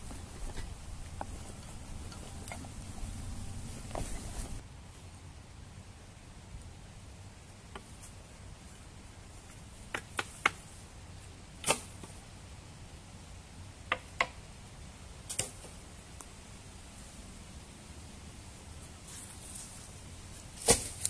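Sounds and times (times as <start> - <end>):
wooden sticks knocking and cracking: 0.0 - 4.6, 9.8 - 10.6.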